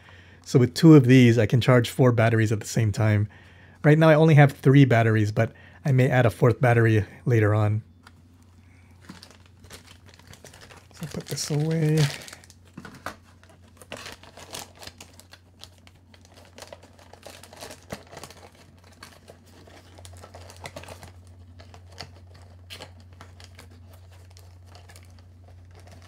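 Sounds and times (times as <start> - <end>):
faint low hum: 0.0 - 26.0
plastic packaging crinkling: 8.0 - 26.0.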